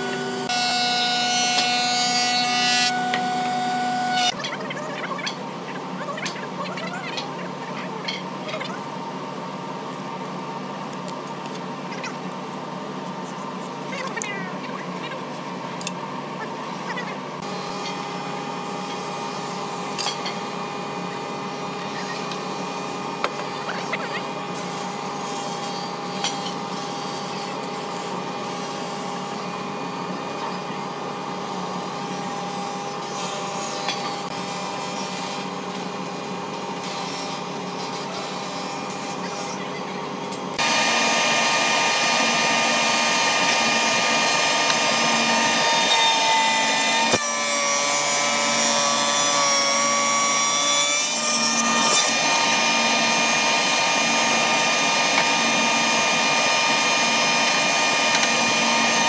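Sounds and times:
woodworking machinery humming: 0:00.0 - 0:59.0
planer cutter heads spinning: 0:40.6 - 0:59.0.

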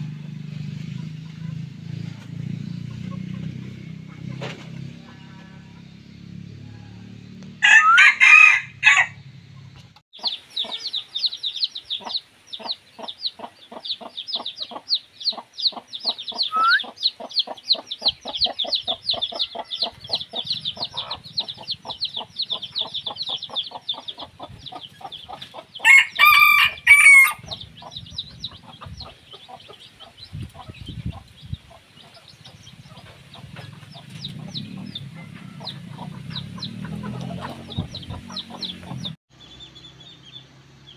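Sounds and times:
roosters crowing: 0:03.0 - 0:09.4, 0:16.3 - 0:17.0, 0:18.5 - 0:30.2, 0:32.6 - 0:39.2.

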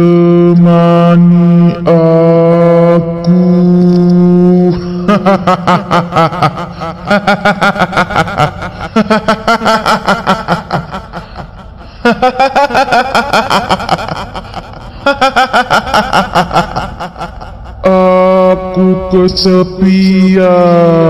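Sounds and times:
low drone: 0:00.0 - 0:21.0
high-pitched cackling laugh: 0:04.7 - 0:18.2.

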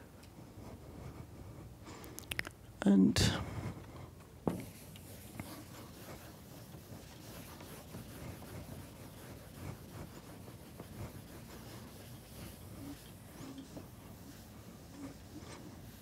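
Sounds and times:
eraser rubbing on chalkboard: 0:04.5 - 0:16.0.

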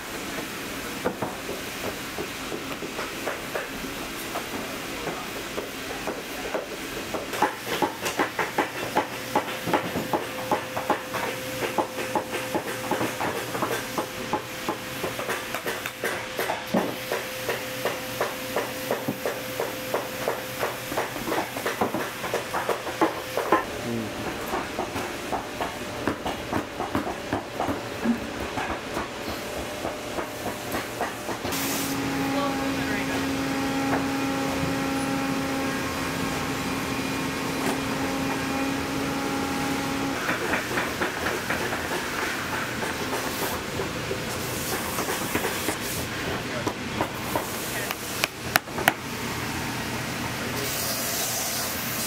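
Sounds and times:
machine hum: 0:31.9 - 0:40.4.

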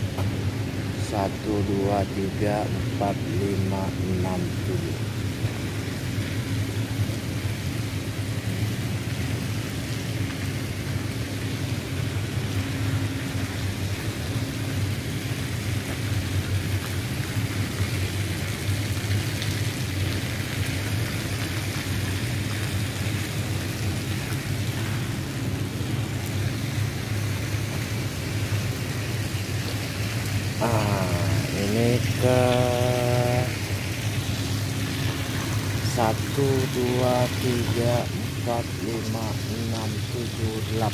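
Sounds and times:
low machinery drone: 0:00.0 - 0:40.9
even hiss: 0:29.2 - 0:40.9.

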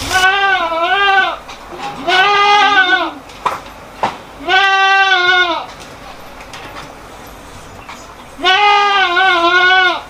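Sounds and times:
goat bleating: 0:00.0 - 0:03.3, 0:04.4 - 0:06.3, 0:08.3 - 0:10.0.

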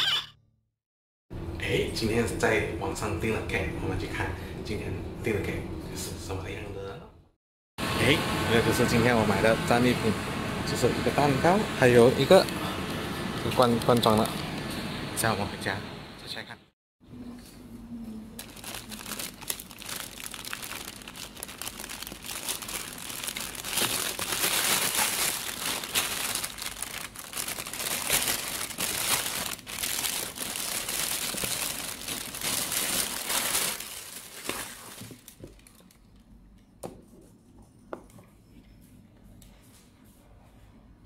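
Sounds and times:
plastic bag crinkling: 0:18.4 - 0:36.1.

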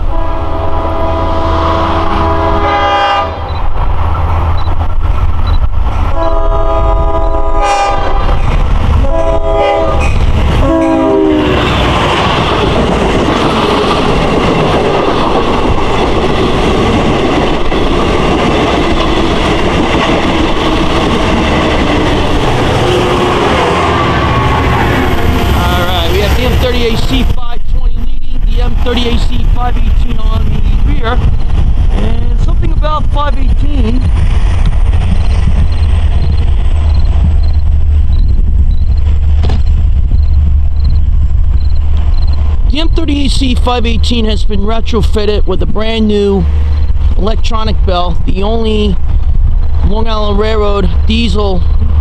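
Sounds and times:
locomotive horn blasts: 0:00.0 - 0:03.5, 0:06.1 - 0:08.3, 0:09.0 - 0:11.8, 0:22.9 - 0:25.4
diesel engine rumble: 0:00.0 - 0:52.0
train wheels clattering on rails: 0:11.6 - 0:23.8, 0:34.0 - 0:43.0.

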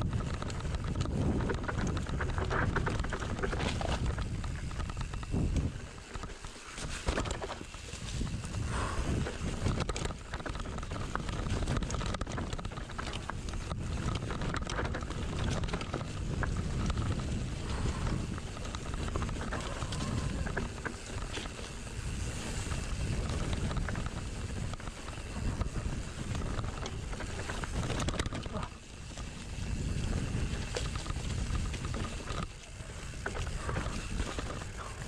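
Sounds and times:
bike clicks and rattles: 0:00.0 - 0:35.0
wind buffeting microphone: 0:00.0 - 0:35.0.

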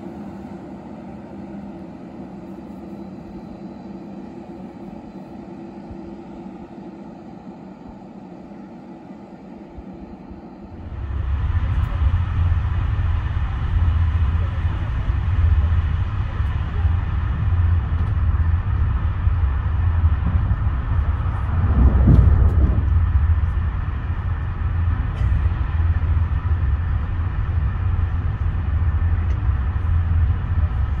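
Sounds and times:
train wheels rumbling on rails: 0:00.0 - 0:31.0.

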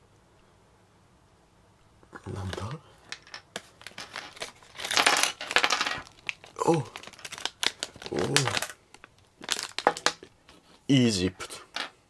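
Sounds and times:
small plastic pieces clicking: 0:02.5 - 0:10.3
plastic bag crinkling: 0:02.5 - 0:10.4.

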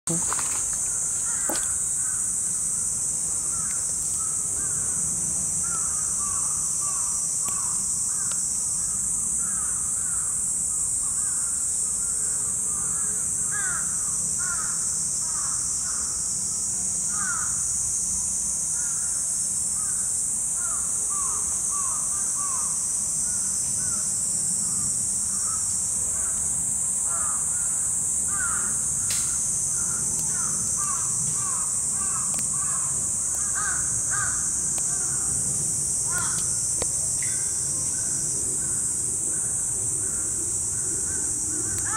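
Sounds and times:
high-pitched hiss: 0:00.1 - 0:41.9
crows cawing: 0:01.2 - 0:02.2, 0:12.8 - 0:15.6, 0:27.1 - 0:27.6, 0:28.3 - 0:28.8, 0:29.8 - 0:34.5, 0:36.1 - 0:36.4.

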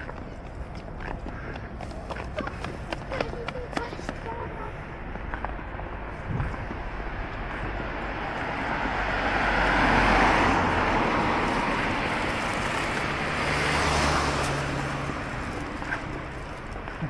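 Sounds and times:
road traffic passing: 0:00.0 - 0:17.0
vehicle engine hum: 0:00.0 - 0:17.0.

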